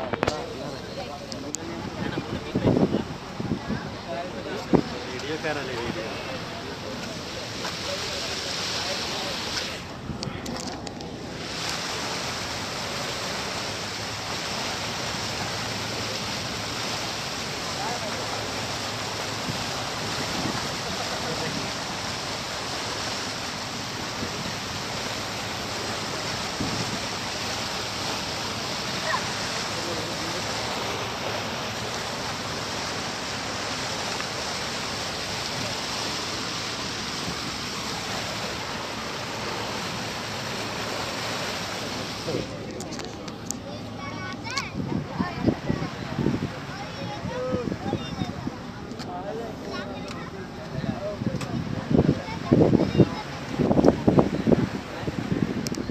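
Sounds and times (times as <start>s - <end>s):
water rushing past boat: 0.0s - 55.9s.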